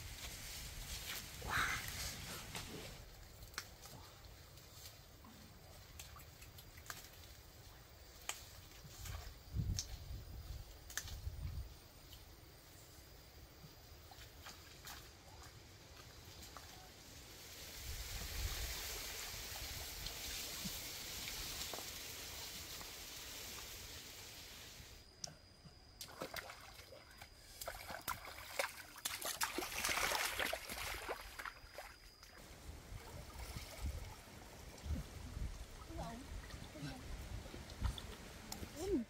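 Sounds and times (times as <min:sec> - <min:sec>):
stream trickling: 0:03.0 - 0:12.6, 0:17.7 - 0:25.2, 0:25.8 - 0:39.0
irregular splashes and crackles: 0:05.7 - 0:10.0, 0:26.0 - 0:32.4.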